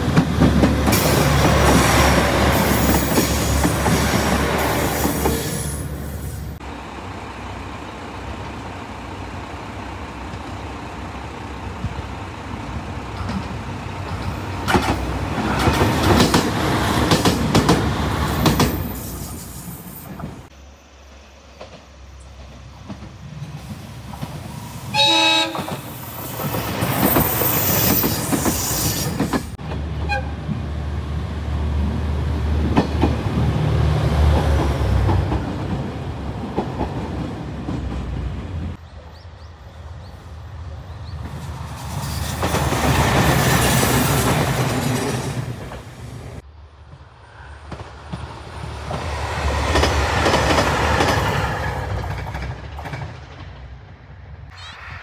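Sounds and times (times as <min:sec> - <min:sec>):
diesel trains passing: 0:00.0 - 0:55.0
train horn toot: 0:24.9 - 0:26.0, 0:30.0 - 0:30.4.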